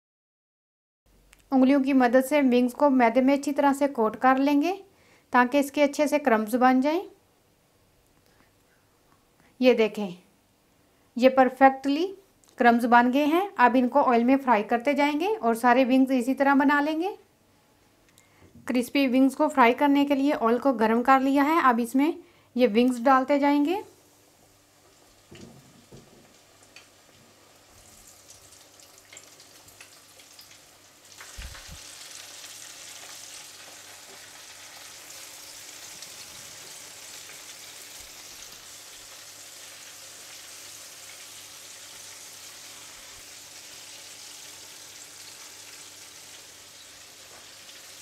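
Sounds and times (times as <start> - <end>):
chicken deep-frying in oil: 24.2 - 48.0.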